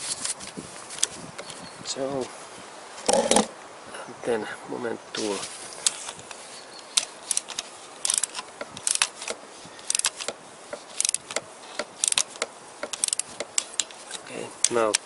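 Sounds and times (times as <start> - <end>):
torque wrench ratchet clicking: 11.0 - 11.3, 11.9 - 13.9.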